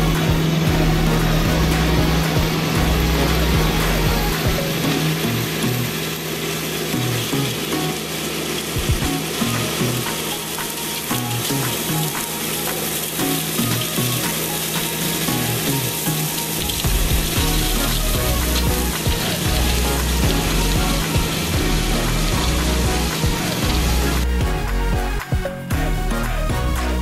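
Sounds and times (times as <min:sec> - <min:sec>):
background music with bass line: 0:00.0 - 0:06.0, 0:15.3 - 0:27.0.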